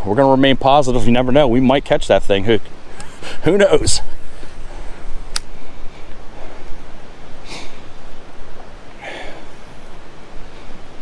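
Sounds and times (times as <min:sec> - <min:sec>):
sharp click: 0:05.3 - 0:05.5.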